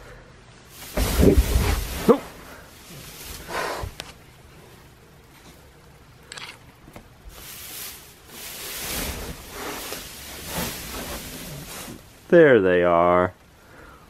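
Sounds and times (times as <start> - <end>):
dry hay rustling and crunching: 0.7 - 5.8, 7.2 - 13.0.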